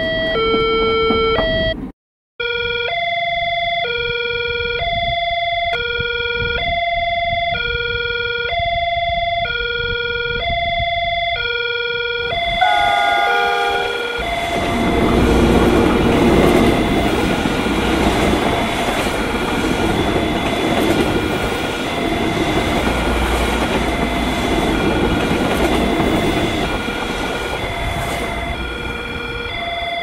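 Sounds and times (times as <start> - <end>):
crossing alarm two-tone ringing: 2.4 - 30.0
train wheels clattering over rail joints: 14.4 - 29.1.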